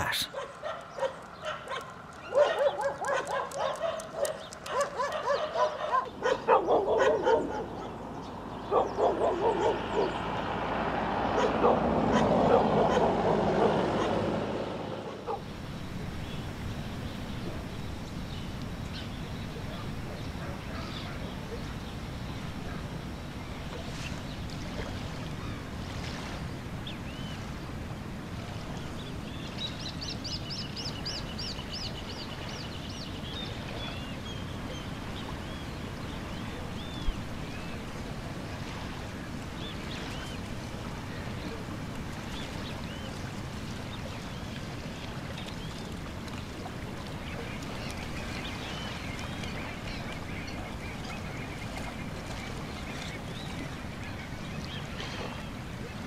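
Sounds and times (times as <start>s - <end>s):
wind: 0.0s - 56.0s
water washing on shore: 22.3s - 29.8s, 33.2s - 56.0s.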